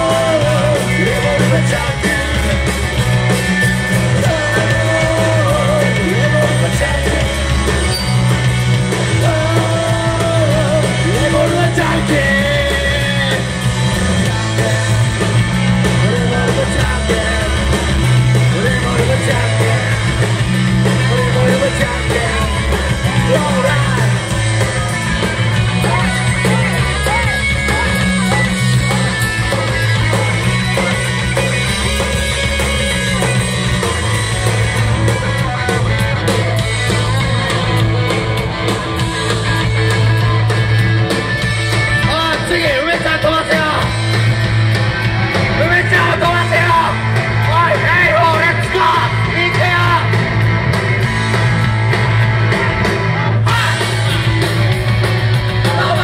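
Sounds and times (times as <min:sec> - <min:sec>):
person singing: 0:00.0 - 0:02.8, 0:04.0 - 0:07.8, 0:09.1 - 0:24.9
bass guitar: 0:00.0 - 0:56.0
drums: 0:00.0 - 0:56.0
electric guitar: 0:00.0 - 0:56.0.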